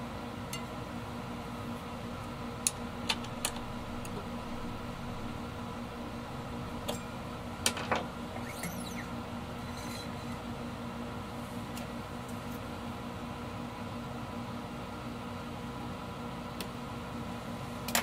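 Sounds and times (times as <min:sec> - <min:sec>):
room tone hum: 0:00.0 - 0:18.0
wrench squeak: 0:08.3 - 0:10.4.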